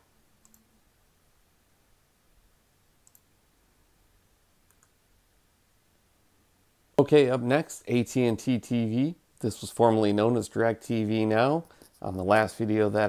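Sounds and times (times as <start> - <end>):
faint short clicks: 0.4 - 0.7, 3.0 - 3.3, 4.7 - 5.0.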